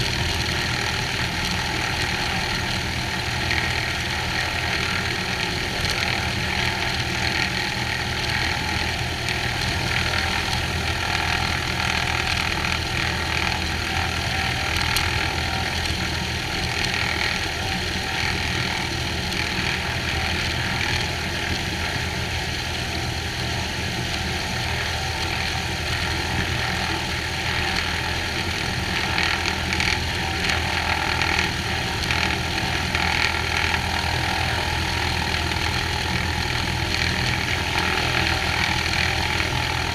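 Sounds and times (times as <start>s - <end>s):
aircraft engine idling: 0.0s - 39.9s.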